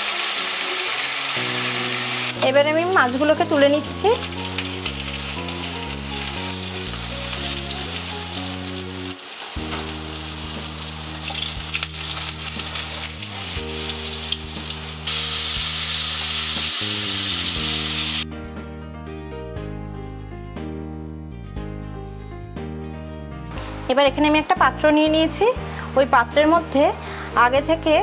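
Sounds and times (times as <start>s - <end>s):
fish sizzling in hot oil: 0.0s - 18.2s.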